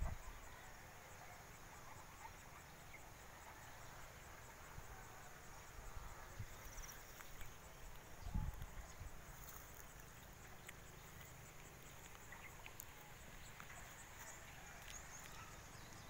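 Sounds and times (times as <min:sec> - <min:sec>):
wind rumble on microphone: 0:00.0 - 0:00.5, 0:07.9 - 0:09.3
insects chirping: 0:00.0 - 0:16.0.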